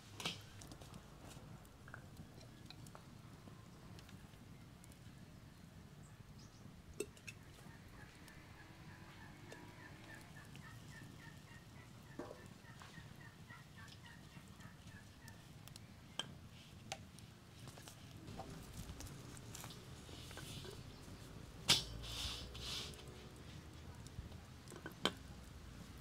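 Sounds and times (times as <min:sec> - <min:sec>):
faint bird calls: 0:07.3 - 0:16.2.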